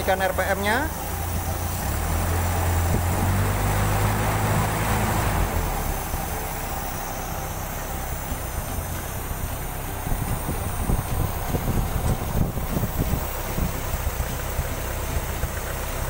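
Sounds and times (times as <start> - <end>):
petrol engine revving: 0.0 - 16.0.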